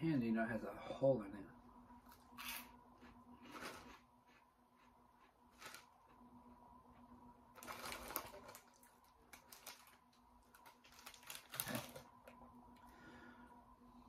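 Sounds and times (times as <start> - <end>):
snack bag crinkling: 5.5 - 5.9, 7.6 - 12.4.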